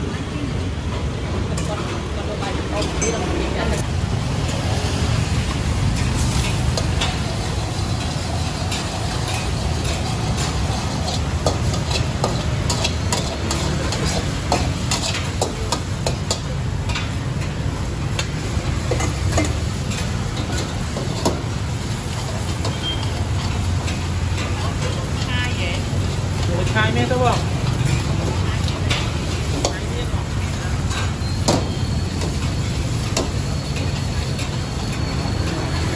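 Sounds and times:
food sizzling in hot oil: 3.8s - 35.9s
metal spatula scraping a wok: 4.6s - 35.9s.

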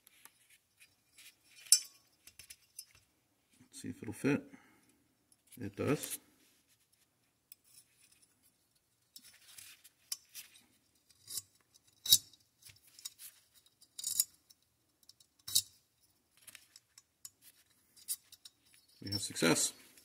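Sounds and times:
small metal parts clicking: 11.1s - 15.8s.

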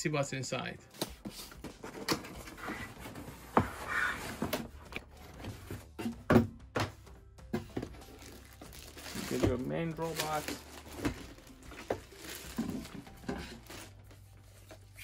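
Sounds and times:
cardboard box scraping and rustling: 1.8s - 4.7s.

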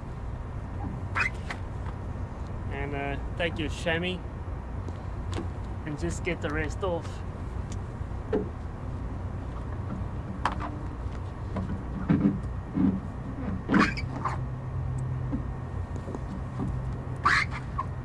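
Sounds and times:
steady low hum: 0.0s - 18.0s
cloth squeaking on wet hull: 1.1s - 1.5s, 12.9s - 14.4s, 17.2s - 18.0s.

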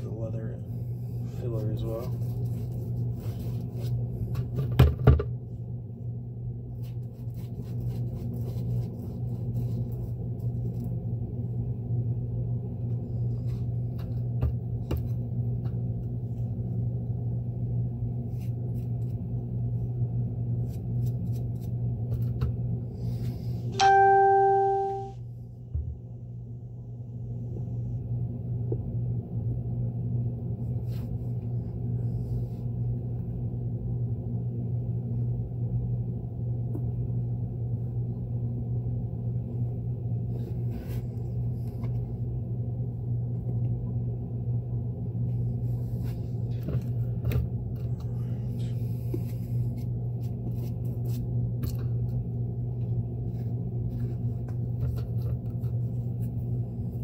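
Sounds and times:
bell-like metallic ring: 23.8s - 25.2s.

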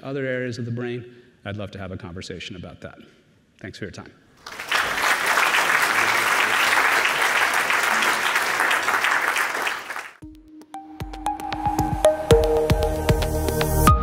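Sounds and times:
audience applauding: 4.4s - 10.2s.

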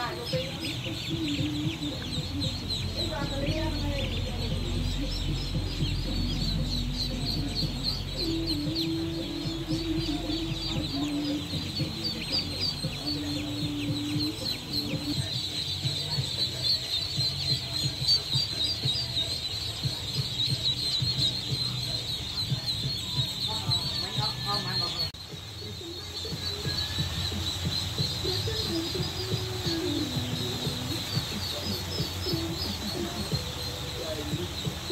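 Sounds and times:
ducklings peeping: 0.0s - 34.9s.

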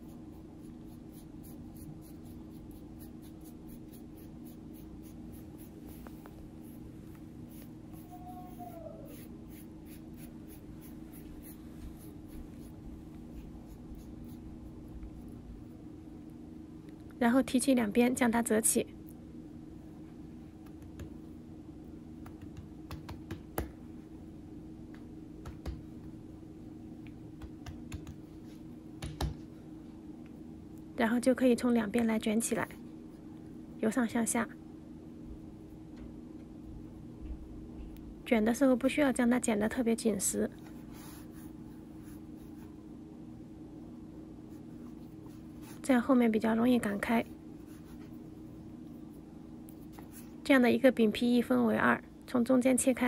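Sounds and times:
pastry brush stroking dough: 0.0s - 14.5s
steady low hum: 0.0s - 53.0s
fingertips tapping dough on board: 22.2s - 23.8s, 24.9s - 25.8s, 27.4s - 28.2s, 29.0s - 29.4s.

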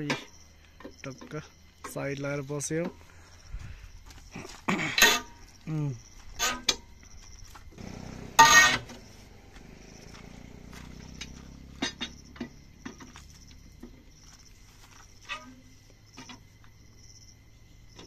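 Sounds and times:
insects buzzing: 0.0s - 18.0s
wheel brace clanking on wheel nuts: 4.5s - 5.5s, 6.2s - 6.9s, 7.6s - 14.4s.

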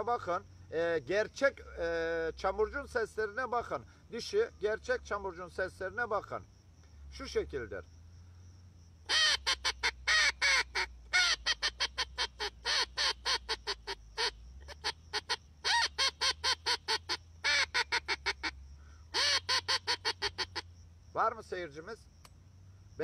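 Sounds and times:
duck call quacks: 9.1s - 20.6s.

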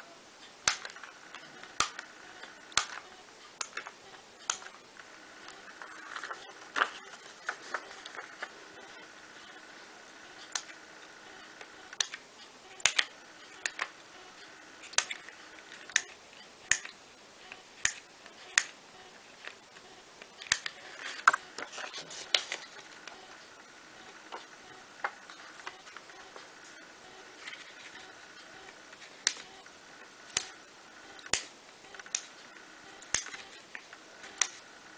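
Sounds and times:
scissors snipping: 33.0s - 33.4s.

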